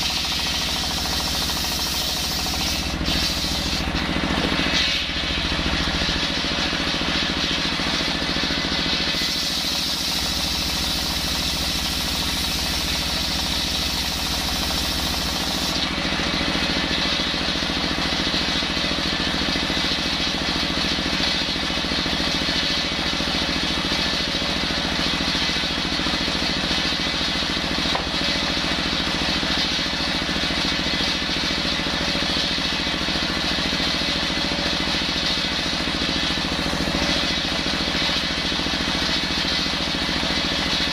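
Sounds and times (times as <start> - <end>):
saw blade cutting wood: 0.0 - 6.4, 9.1 - 15.9
diesel engine running: 0.0 - 19.6.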